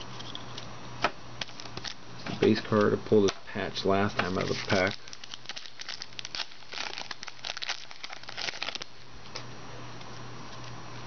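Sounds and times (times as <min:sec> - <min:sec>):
low steady hum: 0:00.0 - 0:11.0
foil pack tearing and crinkling: 0:01.4 - 0:02.0, 0:04.3 - 0:09.0.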